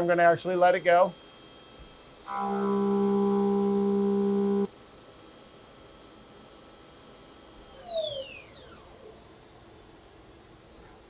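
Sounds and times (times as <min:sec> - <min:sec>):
low droning machine note: 0:00.0 - 0:04.7
milling machine spindle whining: 0:00.0 - 0:09.1.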